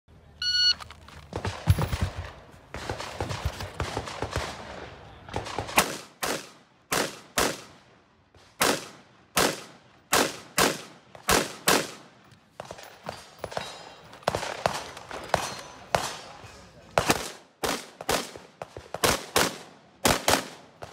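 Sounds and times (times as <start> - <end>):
electronic timer beep: 0.4 - 0.8
rifle shots echoing: 1.3 - 20.9.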